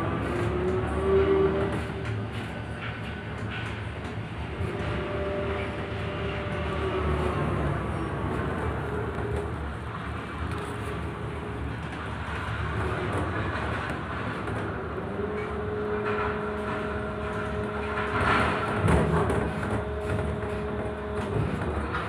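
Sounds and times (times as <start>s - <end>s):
crane machinery low rumble: 0.0s - 22.0s
machinery whine: 0.0s - 22.0s.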